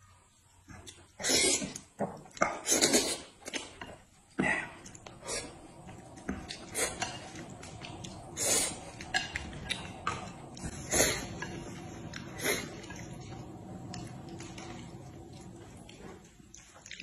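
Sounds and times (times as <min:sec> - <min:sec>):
noisy mouthfuls: 0:01.2 - 0:05.8.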